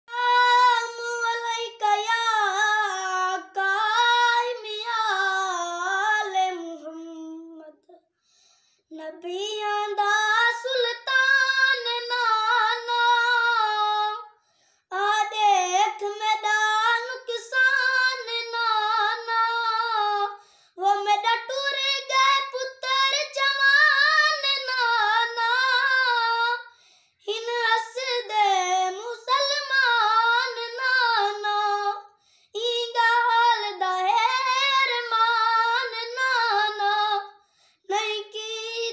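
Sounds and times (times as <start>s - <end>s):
boy singing unaccompanied: 0.1s - 8.0s, 8.9s - 14.3s, 14.9s - 37.3s, 37.9s - 38.9s.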